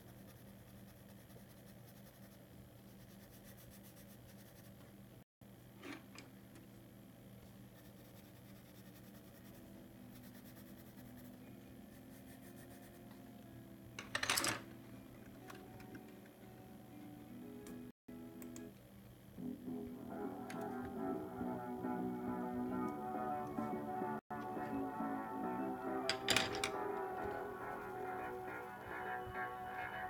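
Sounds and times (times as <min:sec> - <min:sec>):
pencil scratching on paper: 0:00.0 - 0:04.8, 0:07.8 - 0:13.0.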